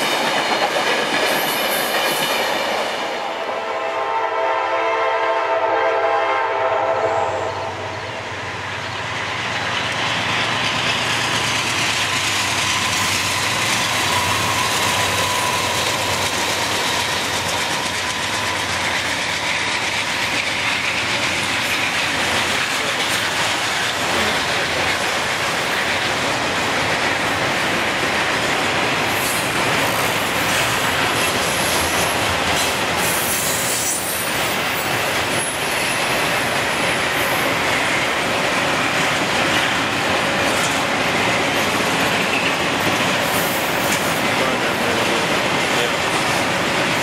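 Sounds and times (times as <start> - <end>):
clickety-clack over rail joints: 0.0 - 3.3, 9.0 - 47.0
train wheels rumbling on rail: 0.0 - 47.0
high-pitched wheel squeal: 12.1 - 18.9, 33.1 - 34.3.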